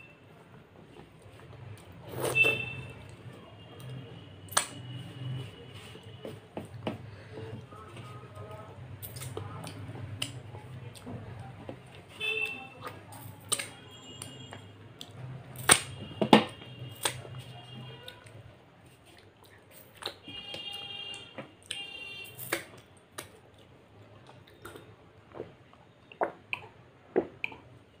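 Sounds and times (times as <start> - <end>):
wet mouth smacks and clicks: 26.1 - 27.6.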